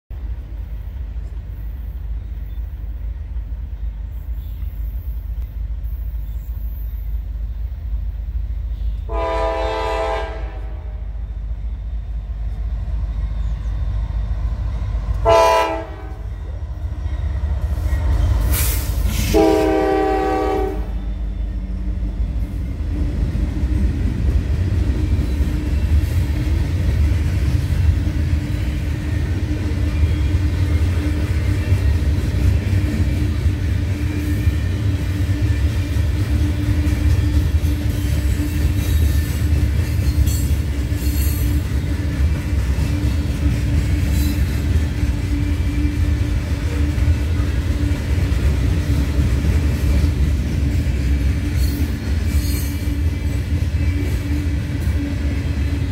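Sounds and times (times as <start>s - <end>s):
train rumble: 0.1s - 55.9s
locomotive air horn blasts: 8.8s - 11.3s, 15.2s - 16.3s, 19.2s - 21.1s.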